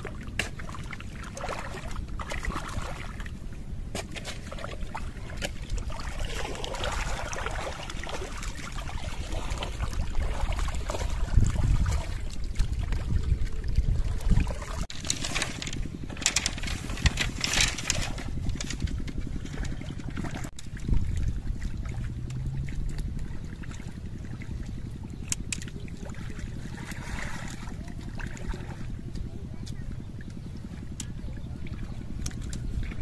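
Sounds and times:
small engine running: 0:14.9 - 0:33.0.

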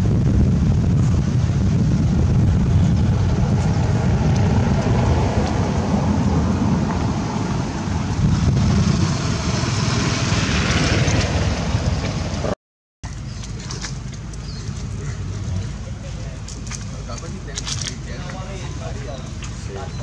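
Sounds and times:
wind buffeting microphone: 0:00.0 - 0:12.6.

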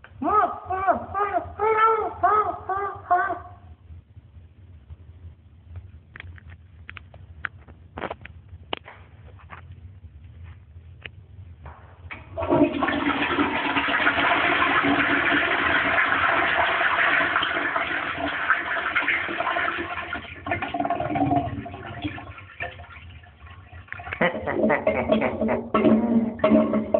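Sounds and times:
toilet flushing: 0:12.1 - 0:26.9
water gurgling: 0:12.2 - 0:26.9.

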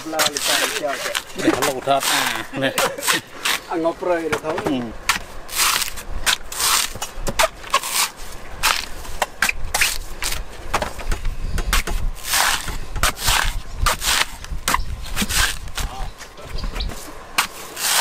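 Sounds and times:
knife scraping coconut husk: 0:00.0 - 0:03.7, 0:05.1 - 0:10.5, 0:11.6 - 0:16.1, 0:16.9 - 0:18.0
knife chopping coconut husk: 0:05.1 - 0:16.1, 0:17.4 - 0:18.0.

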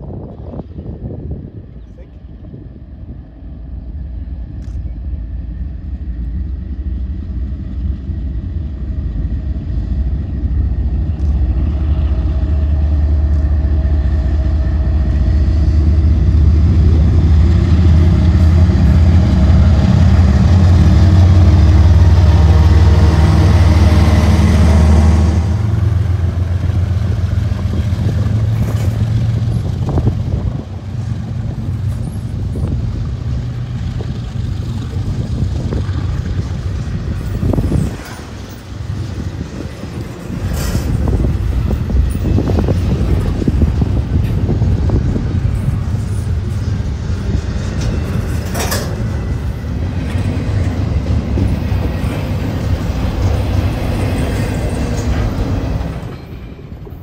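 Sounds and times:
diesel locomotive engine drone: 0:00.0 - 0:57.0
passing train engine hum: 0:00.0 - 0:57.0
train rail noise: 0:00.0 - 0:57.0.

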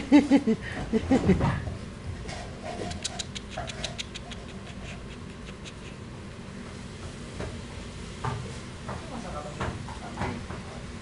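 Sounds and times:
puppy chewing clicks: 0:02.8 - 0:06.0.

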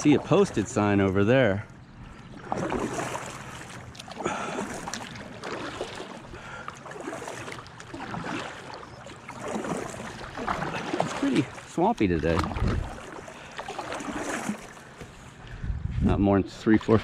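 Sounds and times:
water lapping at hull: 0:00.0 - 0:17.0
paddle splashing in water: 0:02.1 - 0:15.2.

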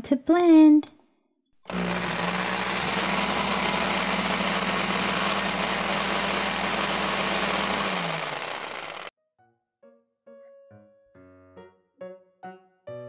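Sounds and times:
electric blender motor whirring: 0:01.6 - 0:09.1.

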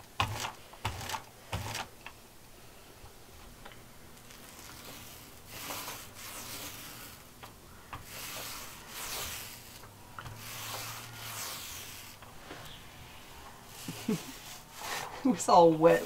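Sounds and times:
paint roller rubbing hiss: 0:04.4 - 0:07.3, 0:08.0 - 0:15.4.

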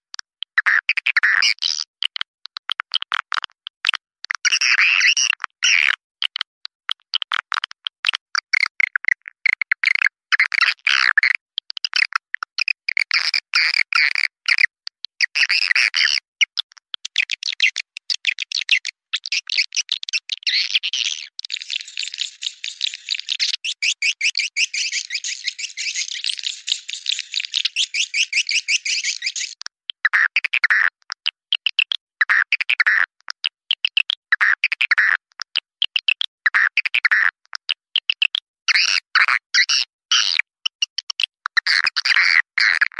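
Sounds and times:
swiftlets chattering chirps: 0:21.5 - 0:29.6.

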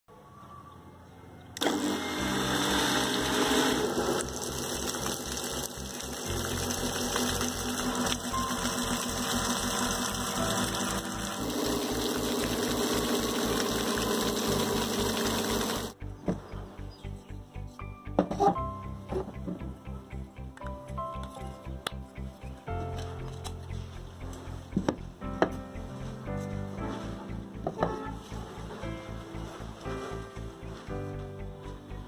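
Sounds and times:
electric motor running: 0:01.6 - 0:16.0
water gushing from pipe: 0:01.6 - 0:16.0.

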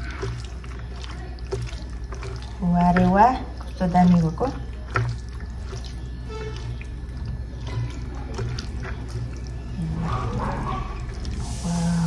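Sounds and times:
food squishing in bowl: 0:00.0 - 0:12.0.

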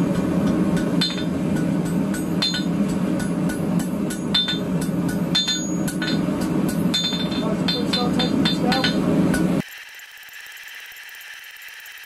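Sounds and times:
hammer striking steel on anvil: 0:00.0 - 0:09.6.

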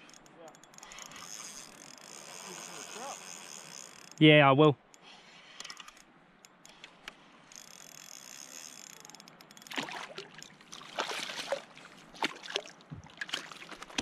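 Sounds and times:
fishing reel whirring: 0:00.0 - 0:04.2, 0:04.9 - 0:06.8, 0:07.5 - 0:10.8
fish splashing in water: 0:09.7 - 0:14.0.

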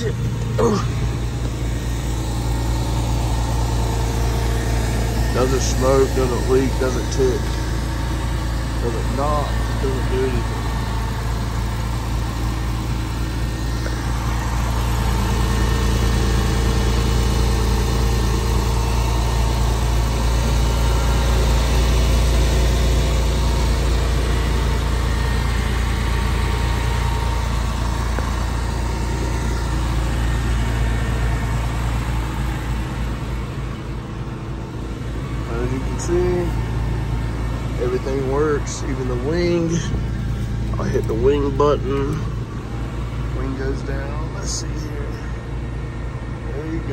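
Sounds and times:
car engine idling: 0:00.0 - 0:46.9.

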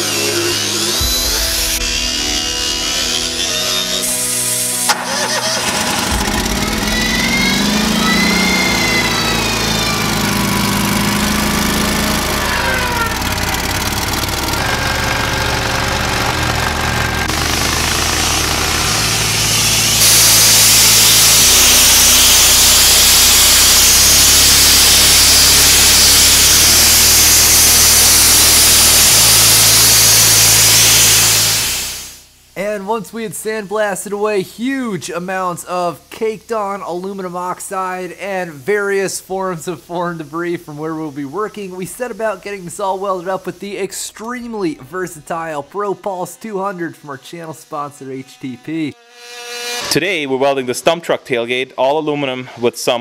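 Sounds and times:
engine running: 0:00.0 - 0:32.4
sandblasting nozzle hissing: 0:00.0 - 0:32.5, 0:34.6 - 0:48.6.

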